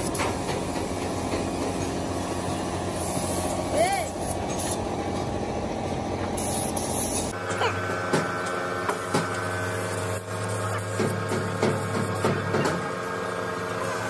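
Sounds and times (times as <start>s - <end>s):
steady mechanical hum: 0.0s - 14.0s
workshop and yard noise: 0.0s - 14.0s
spray gun hissing: 2.6s - 4.8s, 6.4s - 7.4s.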